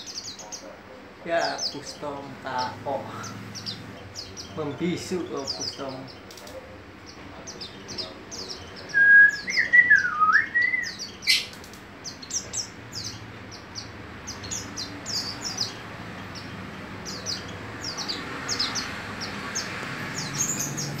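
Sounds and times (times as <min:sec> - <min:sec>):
bird singing high chirps: 0:01.4 - 0:21.0.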